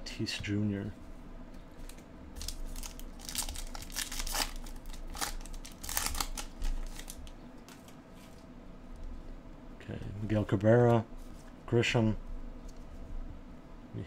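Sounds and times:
wrapper crinkling and tearing: 1.8s - 7.9s.

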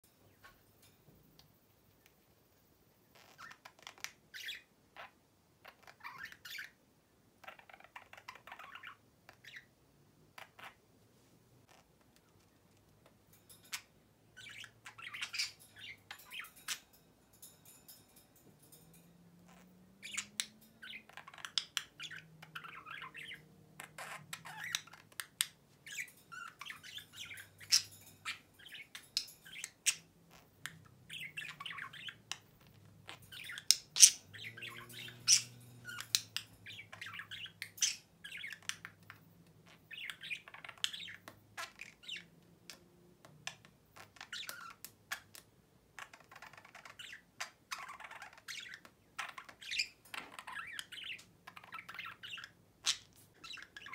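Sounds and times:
budgerigar warbling and chattering: 3.2s - 6.8s, 7.4s - 9.7s, 13.7s - 16.8s, 19.5s - 42.3s, 46.0s - 53.9s
sharp bird clicks: 19.5s - 32.6s.

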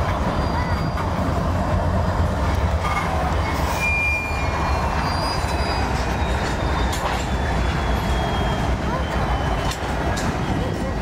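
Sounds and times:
freight train rumbling past: 0.0s - 11.0s
high-pitched wheel squeals: 0.3s - 1.2s, 2.8s - 9.9s.

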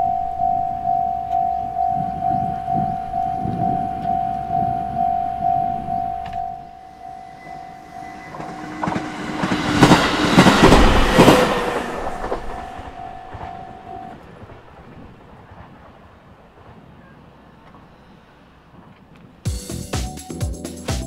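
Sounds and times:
level crossing bell ringing: 0.0s - 9.5s, 12.5s - 14.2s
train wheels clattering: 7.0s - 19.4s.

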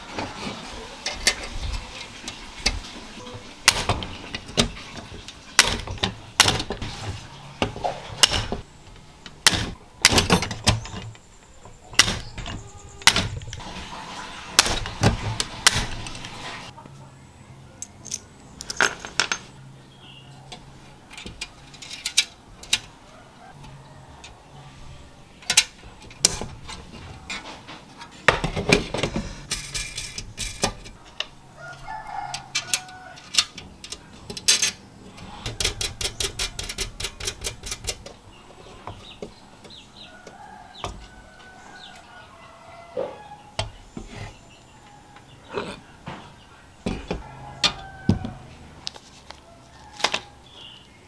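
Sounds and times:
metal parts knocking and rubbing: 0.2s - 13.9s, 17.8s - 19.6s, 20.5s - 23.0s, 25.4s - 39.8s
metallic clicks and clinks: 17.8s - 19.5s.

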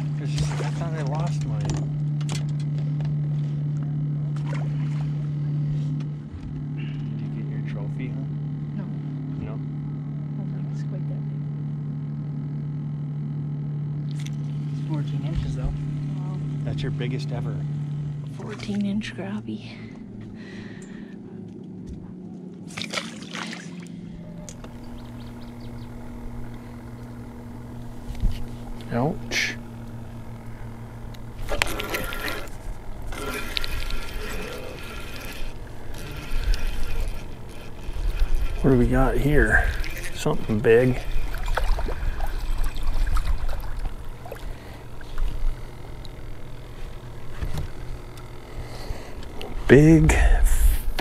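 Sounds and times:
low steady hum: 0.0s - 51.0s
water splashing: 22.7s - 24.2s, 25.2s - 38.6s, 39.4s - 46.6s.

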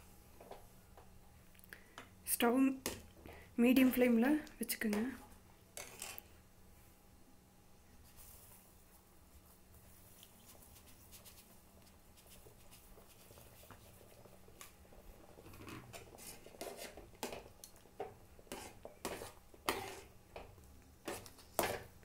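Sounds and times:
metal spoon scraping a pan: 5.8s - 6.2s, 15.5s - 17.4s, 18.5s - 20.1s.

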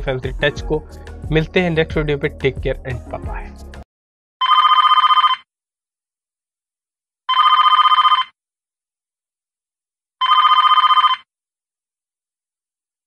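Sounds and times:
phone electronic ringtone: 4.4s - 5.5s, 7.3s - 8.4s, 10.2s - 11.3s.

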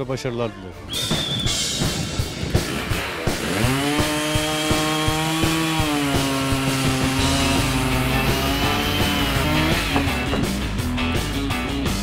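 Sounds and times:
chainsaw cutting log: 2.5s - 10.6s.

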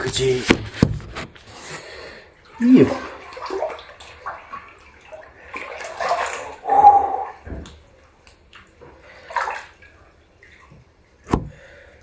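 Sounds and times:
water sloshing and splashing: 0.0s - 12.0s
loud pitched cry: 6.6s - 7.4s.

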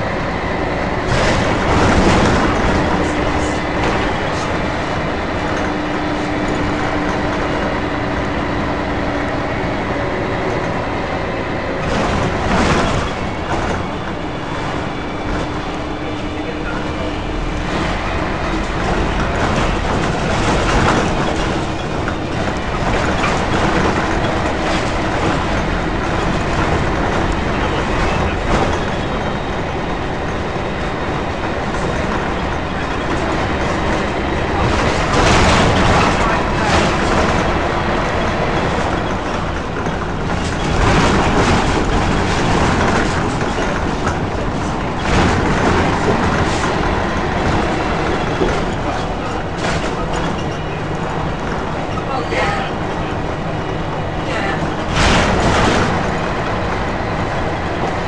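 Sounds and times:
bus body rattling: 0.0s - 58.0s
bus diesel engine running: 0.0s - 58.0s
sharp knocks and jolts: 31.7s - 50.6s, 54.7s - 58.0s.

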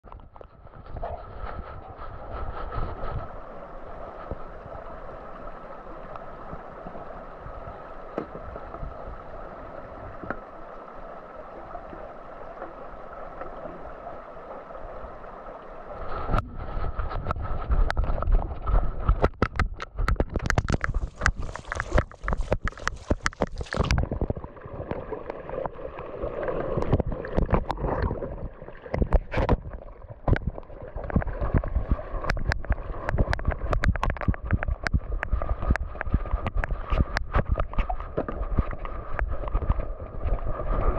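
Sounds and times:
wind on microphone: 0.1s - 10.5s, 15.9s - 24.4s, 26.8s - 40.9s
low rumble: 16.1s - 19.2s.

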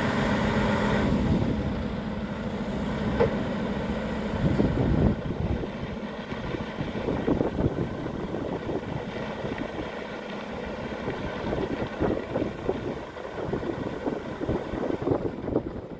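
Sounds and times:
diesel engine idling: 0.0s - 15.9s
wind rumbling on microphone: 4.3s - 15.9s.

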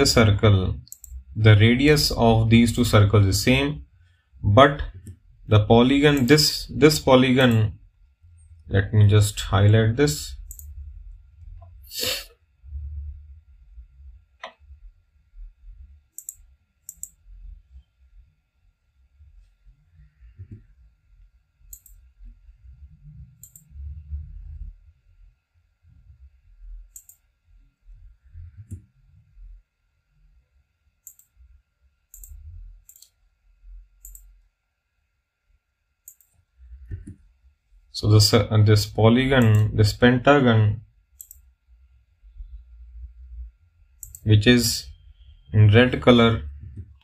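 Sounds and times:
faint low rumble: 0.0s - 30.6s, 31.4s - 34.6s, 36.5s - 47.0s
computer mouse clicking: 0.8s - 1.2s, 6.1s - 6.4s, 10.5s - 10.7s, 16.1s - 17.2s, 21.7s - 22.0s, 23.4s - 23.7s, 26.9s - 27.2s, 31.0s - 31.4s, 32.1s - 33.2s, 34.0s - 34.3s, 36.0s - 37.2s, 39.4s - 39.7s, 41.2s - 41.4s, 44.0s - 44.3s
mouse buttons clicking: 16.2s - 17.2s, 21.7s - 22.0s, 34.0s - 34.2s, 44.0s - 44.2s.

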